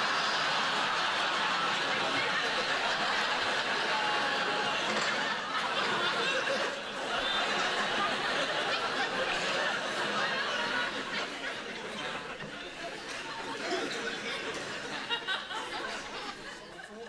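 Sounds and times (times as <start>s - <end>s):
studio audience laughing: 0.0s - 17.0s.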